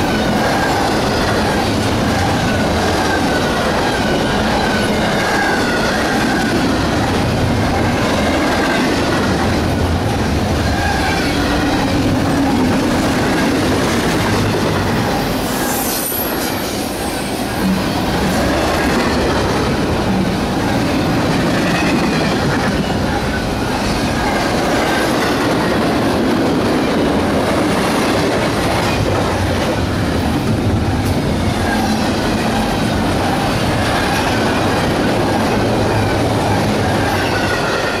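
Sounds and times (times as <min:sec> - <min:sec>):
steel wheels rumbling on rails: 0:00.0 - 0:38.0.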